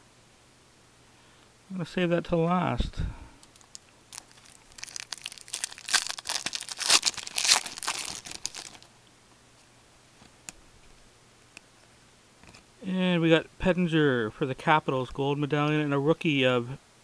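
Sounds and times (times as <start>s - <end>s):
foil wrapper tearing and crinkling: 3.5s - 8.9s.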